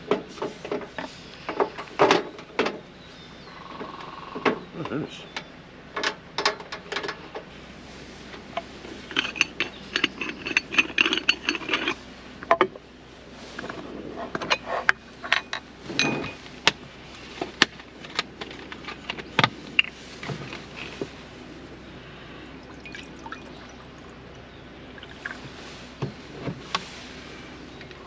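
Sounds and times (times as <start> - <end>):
camp cooking gear clinking: 8.3 - 12.8, 13.5 - 16.8, 17.4 - 21.2.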